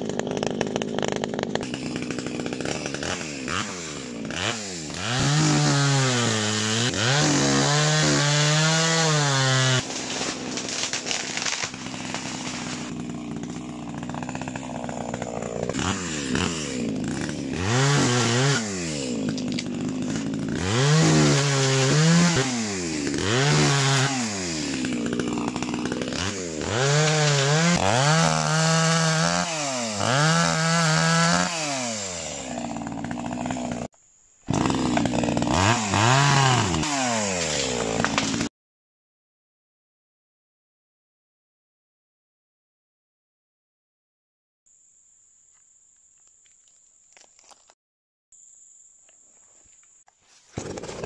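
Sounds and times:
chainsaw revving: 0:00.0 - 0:33.9, 0:34.5 - 0:38.5, 0:50.6 - 0:51.0.

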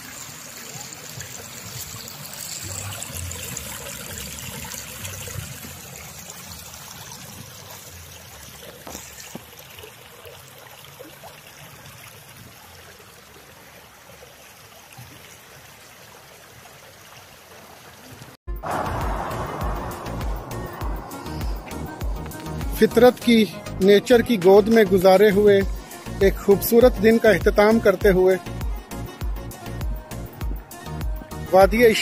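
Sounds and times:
stream trickling over rocks: 0:00.0 - 0:32.0.

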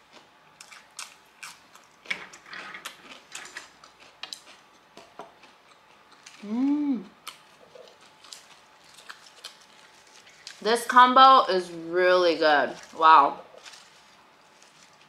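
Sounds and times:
crisp chewing crunches: 0:00.0 - 0:10.9, 0:12.6 - 0:15.0
person humming: 0:06.4 - 0:07.2.

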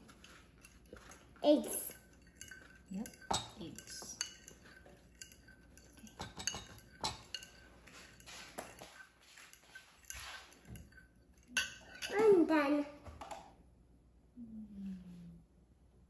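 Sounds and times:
utensil scraping a ceramic bowl: 0:00.0 - 0:12.2.

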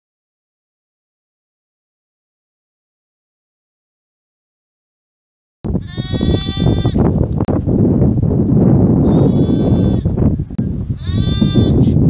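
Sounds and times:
lamb bleating: 0:05.8 - 0:07.0, 0:09.0 - 0:10.1, 0:11.0 - 0:12.0.

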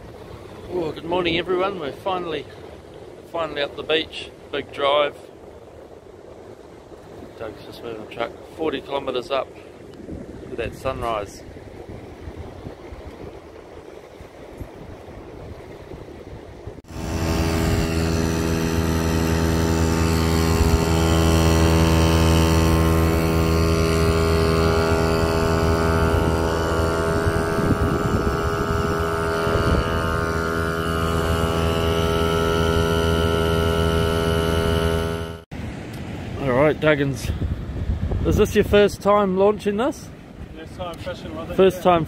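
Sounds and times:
air compressor humming: 0:16.8 - 0:35.5.

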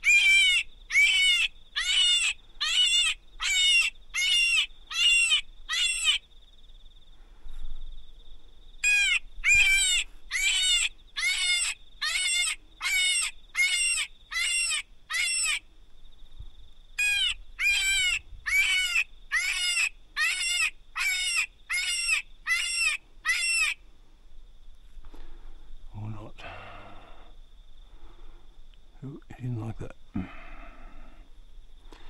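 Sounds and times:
electronic fox call cries: 0:00.0 - 0:06.2, 0:08.8 - 0:15.6, 0:17.0 - 0:23.8.

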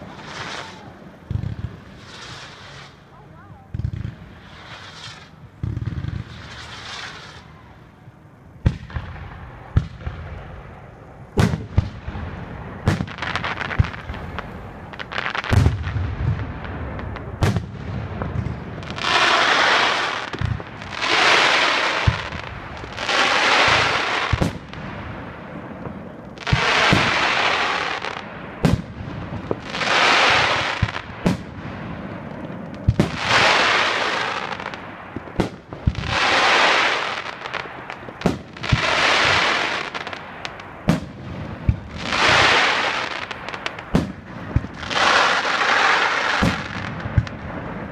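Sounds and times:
firework hissing bursts: 0:00.0 - 0:03.2, 0:03.8 - 0:07.6, 0:18.8 - 0:25.3, 0:26.4 - 0:40.2, 0:40.9 - 0:47.9
firework bangs: 0:00.0 - 0:07.7, 0:08.6 - 0:47.9.

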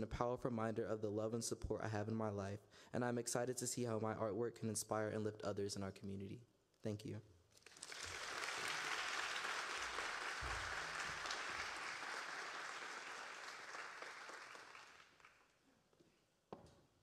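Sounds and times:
audience applauding: 0:07.6 - 0:15.5.

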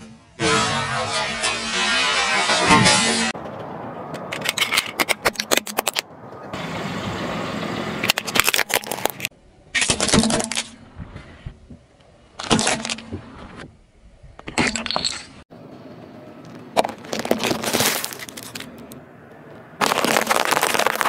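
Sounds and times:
plastic dispensers cracking under tyre: 0:04.2 - 0:06.1, 0:08.0 - 0:10.8, 0:16.5 - 0:19.0, 0:19.8 - 0:21.0.

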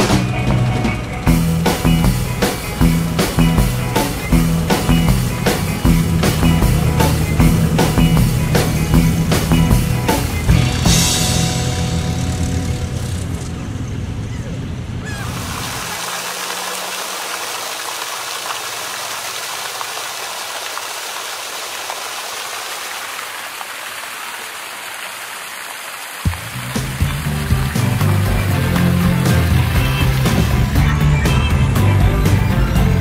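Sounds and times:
fountain water splashing: 0:00.0 - 0:11.2, 0:15.0 - 0:31.0
background music: 0:00.0 - 0:14.0, 0:26.4 - 0:33.0.

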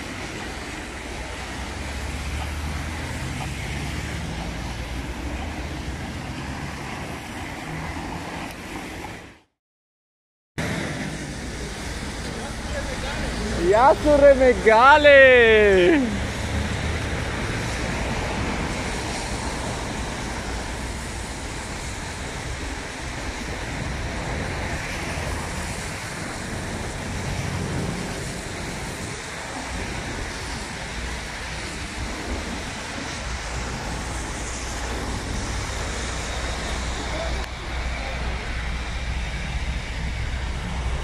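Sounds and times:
street traffic noise: 0:00.0 - 0:09.6, 0:10.6 - 0:41.0
vehicle engines idling: 0:10.6 - 0:24.5, 0:25.2 - 0:41.0.

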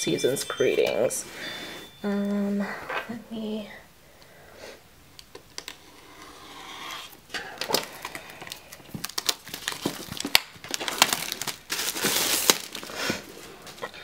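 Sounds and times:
plastic wrap crinkling: 0:07.4 - 0:13.9.

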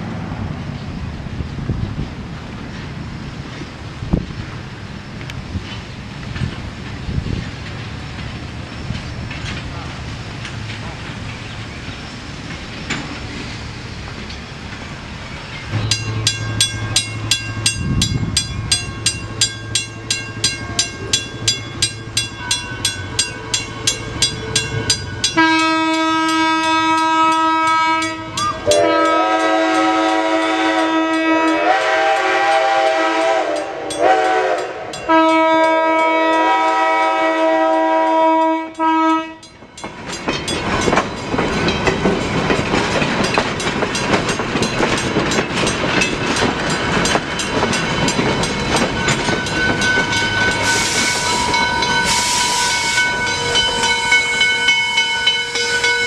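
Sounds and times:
train wheels clattering on rails: 0:00.3 - 0:56.0
crossing signal bell ringing: 0:15.2 - 0:31.7, 0:33.5 - 0:37.0, 0:37.9 - 0:56.0
steam whistle blasts: 0:25.4 - 0:39.4, 0:50.6 - 0:53.1.

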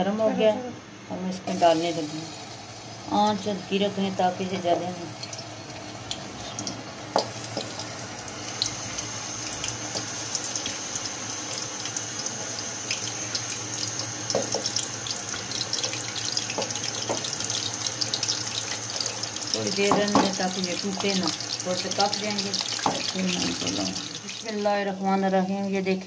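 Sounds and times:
meatballs sizzling in oil: 0:01.4 - 0:25.2
knocks in pan: 0:14.3 - 0:14.7, 0:16.5 - 0:17.3, 0:19.8 - 0:20.4, 0:22.8 - 0:23.1.

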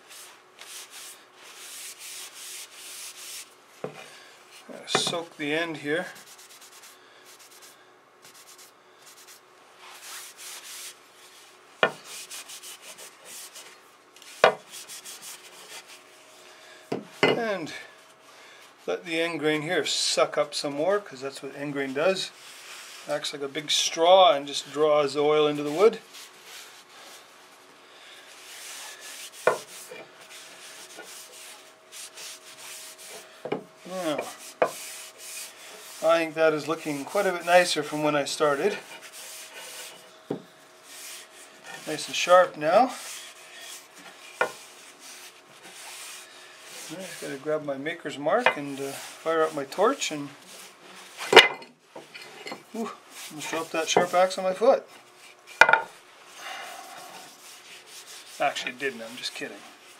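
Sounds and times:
rag wiping wooden handle: 0:00.0 - 0:16.2, 0:21.6 - 0:51.3, 0:52.8 - 0:55.8, 0:56.6 - 0:59.9
cloth wiping hatchet: 0:25.5 - 0:47.7.

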